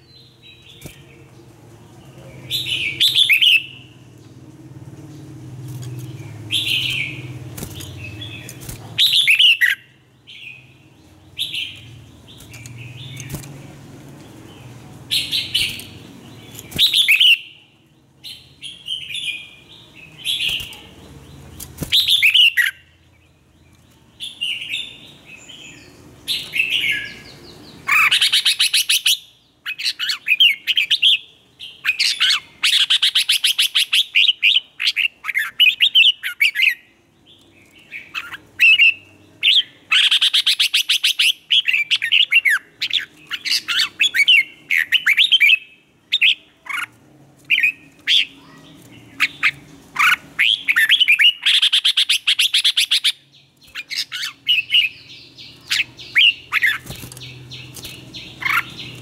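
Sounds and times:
bulbul singing warbled phrases: 0:47.5 - 0:59.0.

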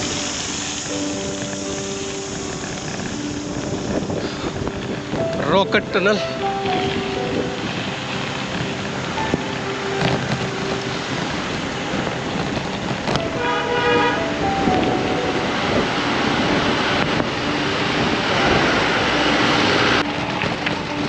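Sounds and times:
rushing road noise: 0:00.0 - 0:21.0
vehicle horn honking: 0:13.2 - 0:15.3.

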